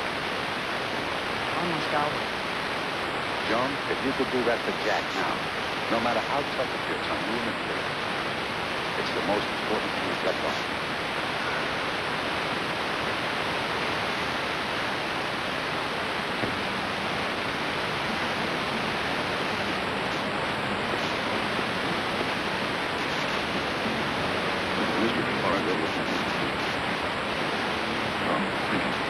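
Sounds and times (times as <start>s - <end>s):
videotape static hiss: 0.0s - 29.0s.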